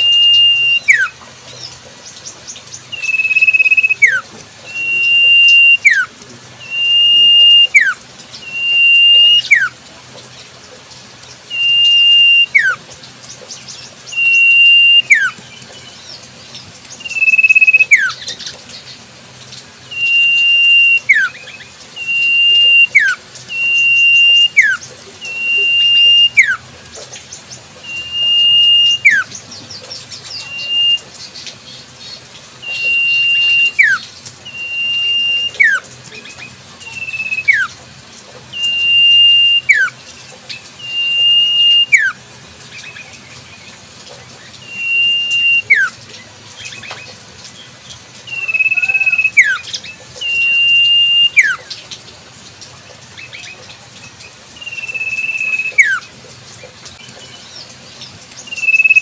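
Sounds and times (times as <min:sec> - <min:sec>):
bird whistling call: 0:00.0 - 0:01.2, 0:02.9 - 0:09.8, 0:11.5 - 0:12.8, 0:14.1 - 0:15.4, 0:16.9 - 0:18.4, 0:19.9 - 0:26.6, 0:27.8 - 0:29.4, 0:30.3 - 0:31.3, 0:32.6 - 0:37.8, 0:38.5 - 0:40.0, 0:40.8 - 0:42.2, 0:44.6 - 0:46.0, 0:48.3 - 0:51.7, 0:54.6 - 0:56.1, 0:58.4 - 0:59.0.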